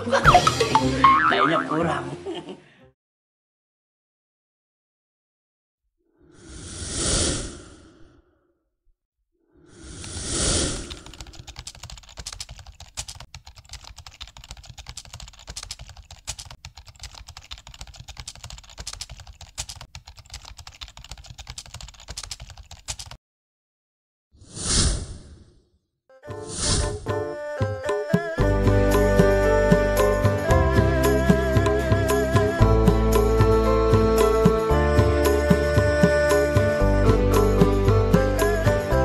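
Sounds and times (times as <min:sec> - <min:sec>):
rapid clicks like keyboard typing: 0:10.8 - 0:23.2.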